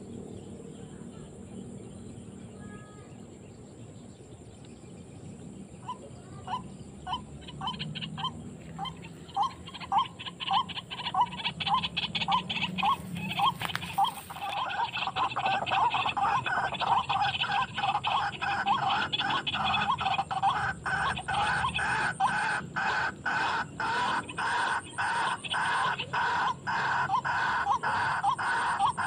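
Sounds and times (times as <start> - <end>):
waterhen calls: 5.8 - 29.0.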